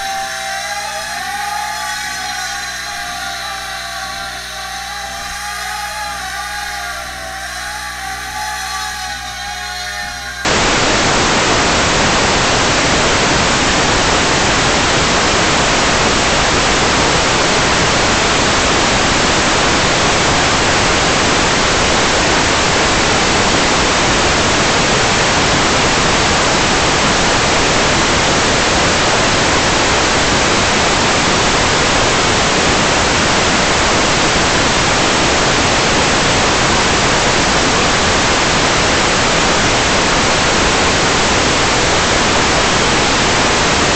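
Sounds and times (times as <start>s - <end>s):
static hiss: 5.9s - 43.9s.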